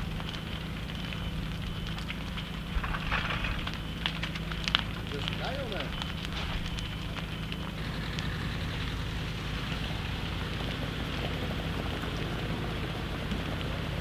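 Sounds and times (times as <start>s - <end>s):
fire crackling: 0.0s - 14.0s
low steady hum: 0.0s - 14.0s
water pattering down: 0.0s - 14.0s.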